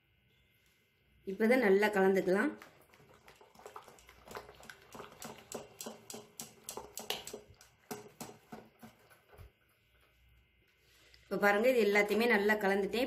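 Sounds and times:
spoon stirring batter in metal bowl: 0:02.3 - 0:10.2.

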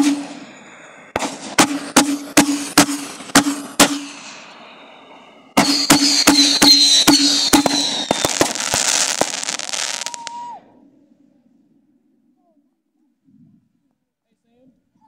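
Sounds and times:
firework bangs: 0:00.0 - 0:04.8, 0:05.6 - 0:10.6
firework crackling: 0:00.0 - 0:10.6
firework whistle: 0:00.0 - 0:10.7.

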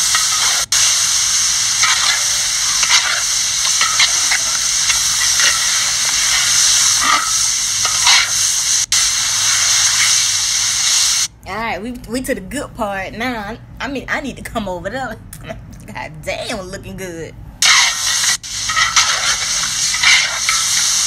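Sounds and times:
metal spatula scraping: 0:00.0 - 0:01.0, 0:01.6 - 0:08.6, 0:17.6 - 0:21.0
food sizzling in a wok: 0:00.0 - 0:11.3, 0:17.6 - 0:21.0.

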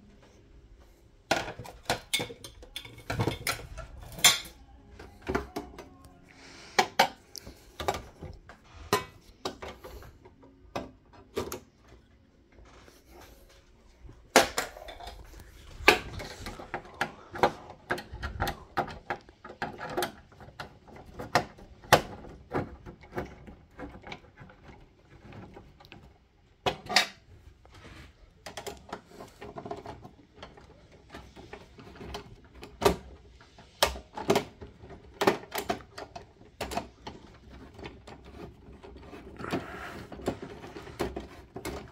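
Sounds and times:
metal and plastic parts clinking: 0:01.3 - 0:05.9.

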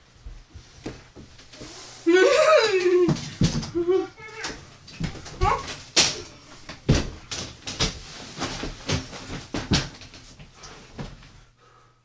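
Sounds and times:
irregular knocks and clattering thumps: 0:03.0 - 0:11.3.

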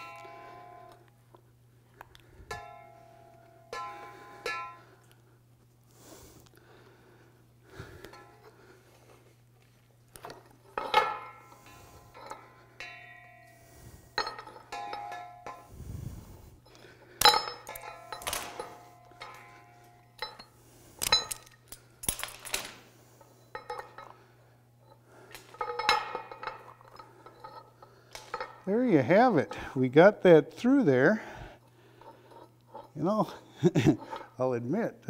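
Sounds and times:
metallic clinks and knocks: 0:00.0 - 0:01.2, 0:02.1 - 0:05.2, 0:09.6 - 0:28.7, 0:31.9 - 0:34.4.

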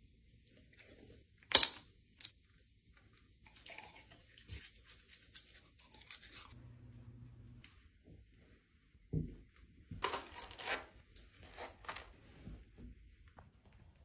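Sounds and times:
toothbrush scrubbing teeth: 0:03.0 - 0:06.6
low hum: 0:06.6 - 0:07.7.

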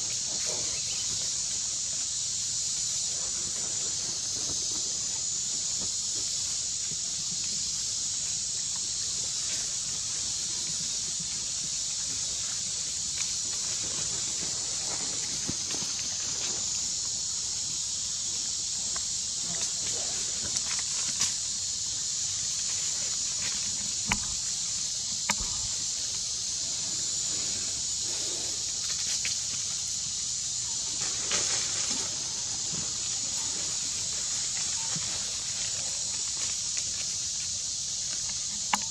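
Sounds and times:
forest ambience hiss: 0:00.0 - 0:38.9
insects droning: 0:00.0 - 0:38.9
rustling on dry leaves: 0:19.4 - 0:38.9.

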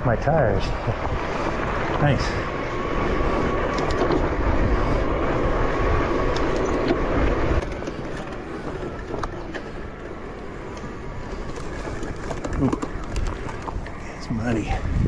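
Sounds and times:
bike tires rolling on dirt: 0:00.0 - 0:15.0
small rattles and ticks: 0:06.2 - 0:14.2.

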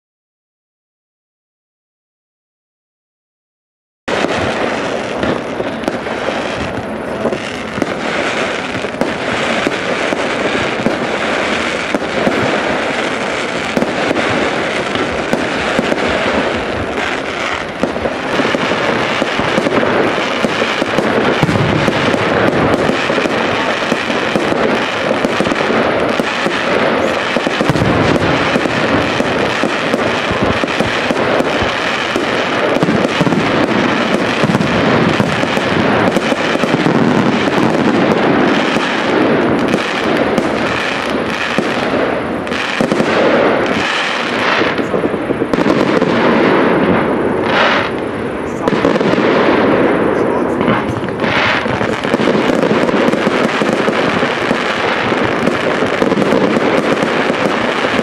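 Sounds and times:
fireworks bangs and crackling: 0:04.1 - 0:58.0.

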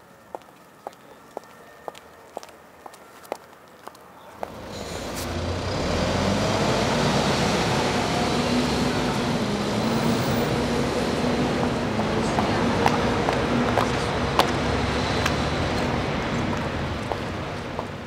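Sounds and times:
road traffic rumble: 0:00.0 - 0:18.0
high heels on pavement: 0:00.3 - 0:04.6, 0:12.3 - 0:14.6, 0:15.2 - 0:18.0
heavy vehicle engine hum: 0:04.4 - 0:18.0.

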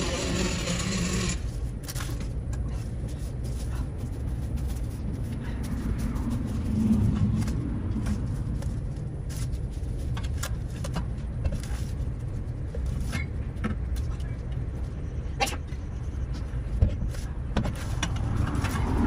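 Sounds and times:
steady low rumble: 0:01.2 - 0:19.0.

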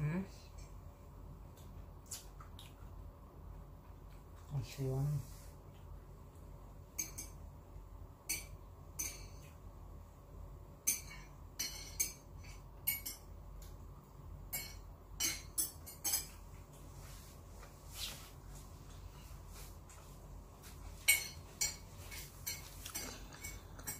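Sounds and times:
chopsticks clinking against bowls: 0:07.0 - 0:07.4, 0:08.3 - 0:09.5, 0:14.6 - 0:16.4, 0:21.0 - 0:23.9.

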